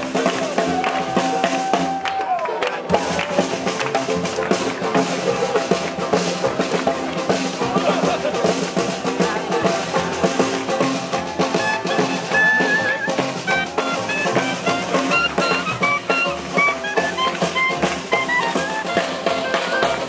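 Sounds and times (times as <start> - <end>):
snare drum: 0.0 - 20.0
strummed banjo: 0.0 - 20.0
plucked upright bass: 2.6 - 20.0
clarinet melody: 11.4 - 20.0.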